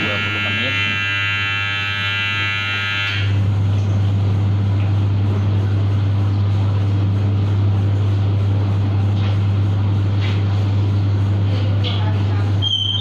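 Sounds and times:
electronic timer buzzer: 0:00.0 - 0:03.5.

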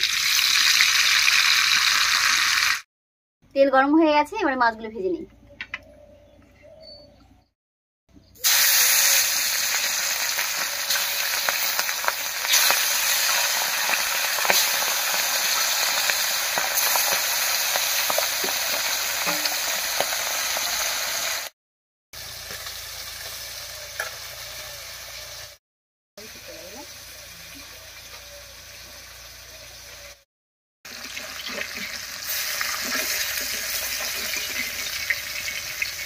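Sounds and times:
fish sizzling in hot oil: 0:00.0 - 0:02.8, 0:08.4 - 0:21.6, 0:22.2 - 0:25.6, 0:26.2 - 0:30.2, 0:30.9 - 0:36.0.

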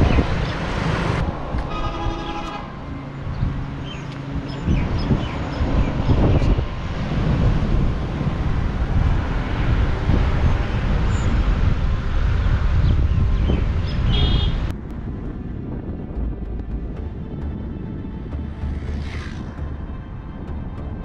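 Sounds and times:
vehicle rumbling along road: 0:00.0 - 0:21.0
wind buffeting microphone: 0:00.0 - 0:21.0.

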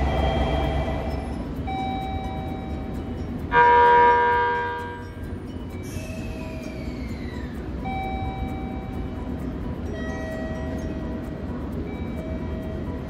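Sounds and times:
whine sliding down in pitch: 0:00.0 - 0:02.8
steady low rumble: 0:00.0 - 0:13.0
train horn blast: 0:03.5 - 0:05.1.

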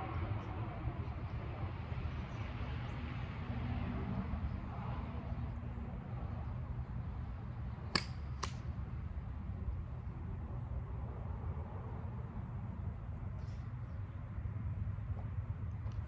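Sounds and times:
golf club striking ball: 0:07.9 - 0:08.6.

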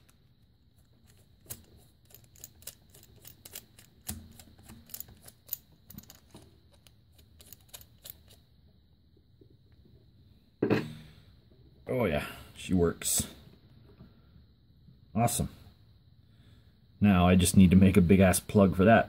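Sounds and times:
metal cap screwing clicks: 0:01.0 - 0:08.4.

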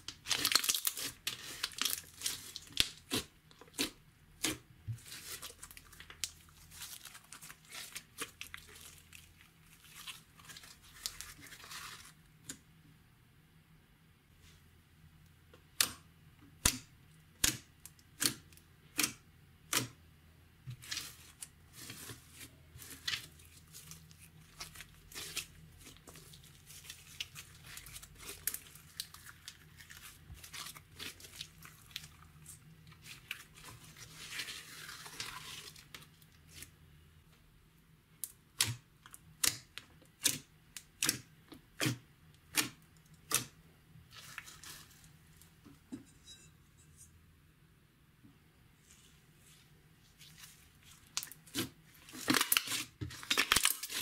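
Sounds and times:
slime crackling: 0:00.0 - 0:12.2, 0:20.8 - 0:36.7, 0:50.0 - 0:54.0.

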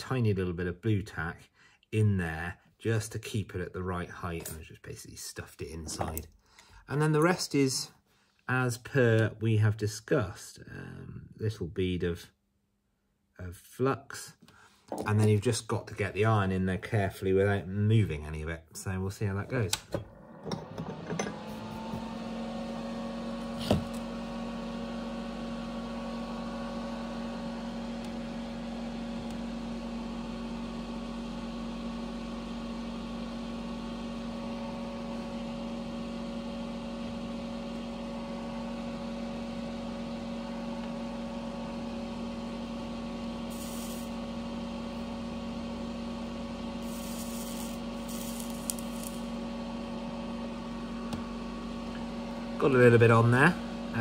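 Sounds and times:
electric motor humming: 0:20.0 - 0:54.0.

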